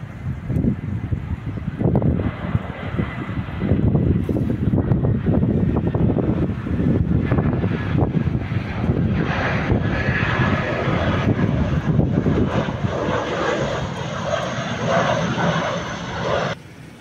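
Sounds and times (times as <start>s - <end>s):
jet airliner passing low: 0.0s - 17.0s
jet engine whine: 0.0s - 17.0s.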